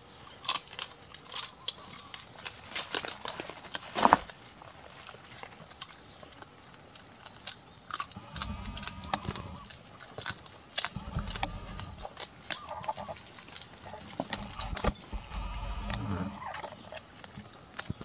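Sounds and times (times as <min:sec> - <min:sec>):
crunchy biting and chewing: 0:00.3 - 0:18.0
low rumbles: 0:08.2 - 0:09.7, 0:10.9 - 0:12.2, 0:13.9 - 0:16.6.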